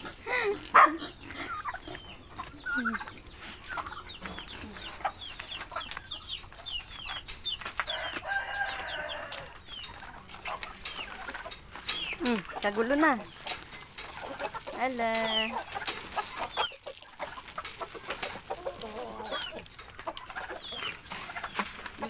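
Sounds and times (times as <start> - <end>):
chickens clucking: 0.0 - 22.0
rooster crowing: 7.9 - 9.6.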